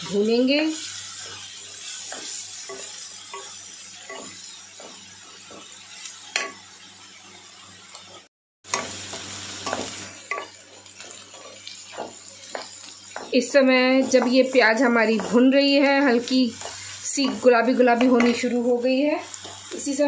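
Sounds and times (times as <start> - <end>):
onions sizzling in a pan: 0.0 - 20.0
spatula scraping a pan: 8.7 - 19.8.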